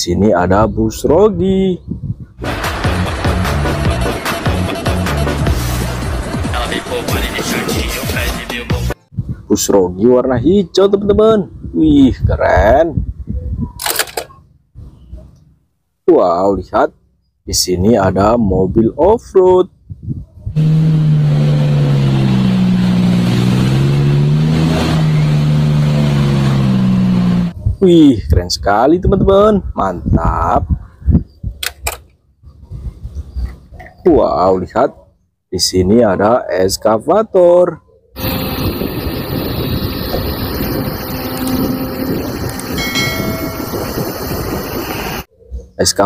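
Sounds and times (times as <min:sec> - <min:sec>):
car engine under load: 0:20.6 - 0:27.6, 0:38.2 - 0:45.3
brief whine: 0:38.2 - 0:45.3.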